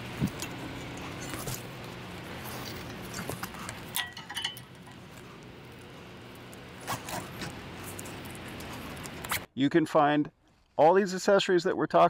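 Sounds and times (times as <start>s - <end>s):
low steady hum: 0.0s - 9.5s
strap clicks and rattles: 2.6s - 9.4s.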